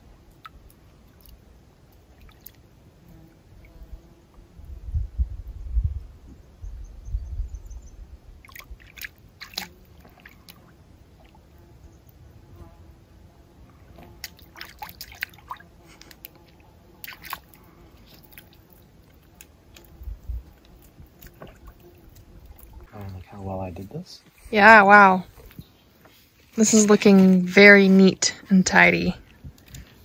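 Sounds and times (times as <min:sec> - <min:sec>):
wet laps and splashes: 0:00.3 - 0:02.8, 0:08.4 - 0:11.6, 0:14.0 - 0:23.4
dog lapping water: 0:14.3 - 0:19.4.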